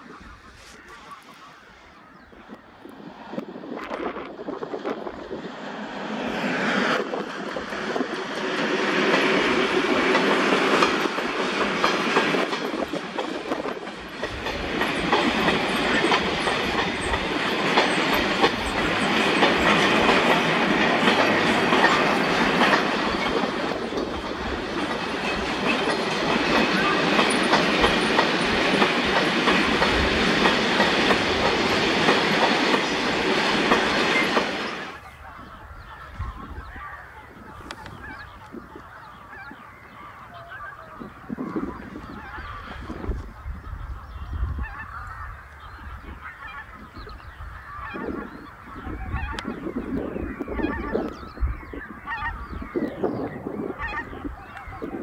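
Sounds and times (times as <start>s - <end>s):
diesel locomotive engine: 0.0s - 55.0s
train wheels rumbling on rails: 2.8s - 40.2s.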